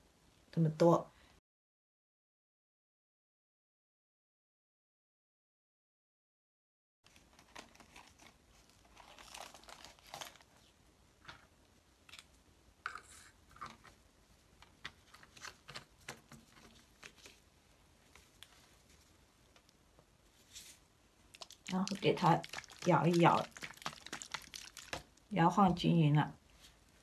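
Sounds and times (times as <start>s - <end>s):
plastic crinkling: 7.1s - 11.4s, 14.6s - 19.7s, 20.4s - 25.3s.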